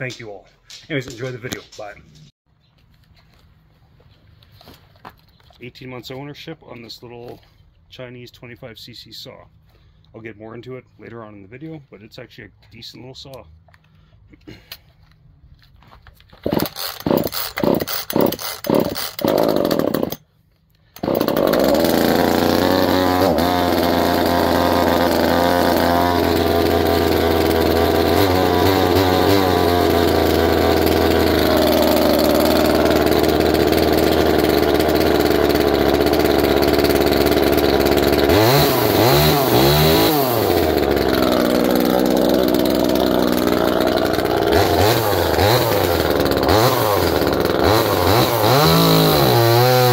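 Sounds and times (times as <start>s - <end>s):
chainsaw pull-start cord pulls: 16.2s - 49.9s
chainsaw engine idling: 16.4s - 20.2s, 20.8s - 49.9s
chainsaw throttle revving: 16.4s - 20.2s, 20.8s - 49.9s.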